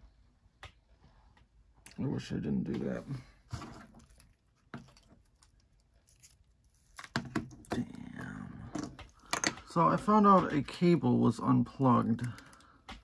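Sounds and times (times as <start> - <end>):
rustling: 3.0 - 9.4
clicks and scraping of small parts: 3.5 - 7.8, 8.7 - 10.5, 12.0 - 13.0.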